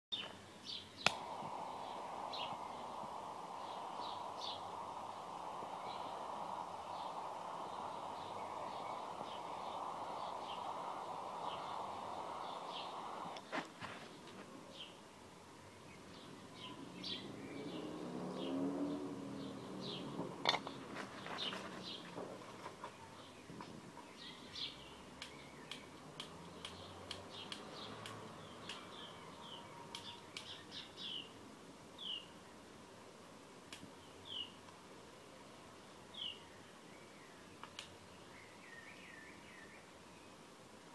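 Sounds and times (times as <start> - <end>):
faint bird chirps: 0.1 - 31.4, 32.0 - 32.6, 33.9 - 34.6, 35.8 - 40.5
sharp clicks: 1.0 - 1.4, 25.2 - 28.9
lighter flame hissing: 1.0 - 13.8.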